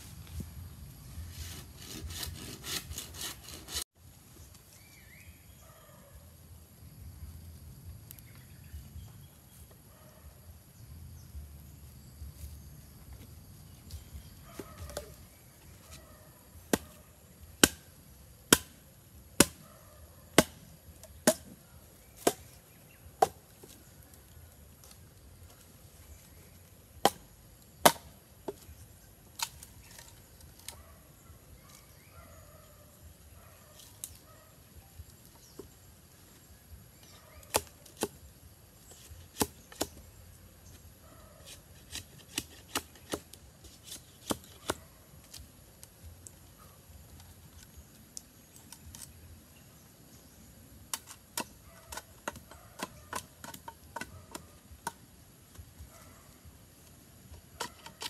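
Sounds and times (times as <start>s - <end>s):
machete chopping bamboo: 1.8s - 3.8s, 16.6s - 17.0s, 17.6s - 17.9s, 18.5s - 18.8s, 19.4s - 19.6s, 20.4s - 22.6s, 23.2s - 23.8s, 27.0s - 28.7s, 37.5s - 38.2s, 39.0s - 40.1s, 41.5s - 45.4s, 50.9s - 55.0s.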